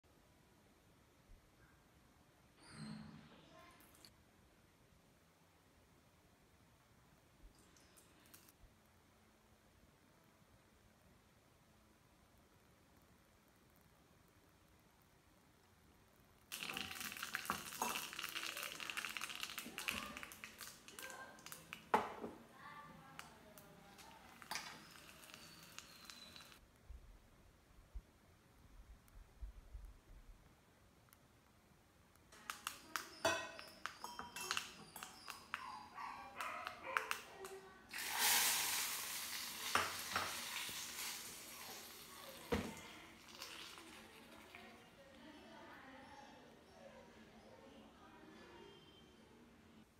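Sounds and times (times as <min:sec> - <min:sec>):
seeds sizzling in hot oil: 0:16.5 - 0:22.0, 0:23.2 - 0:26.6, 0:37.9 - 0:44.8.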